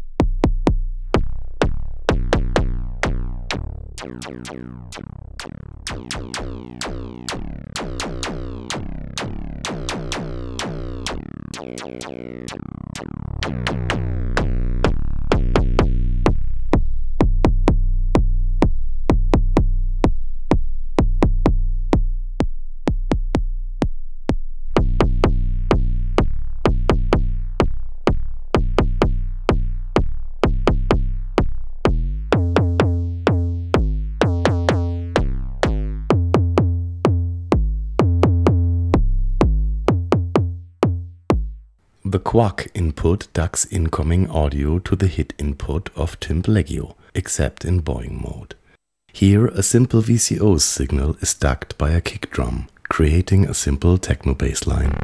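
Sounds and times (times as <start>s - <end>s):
electronic drum hits sweeping down: 2.1s - 16.0s.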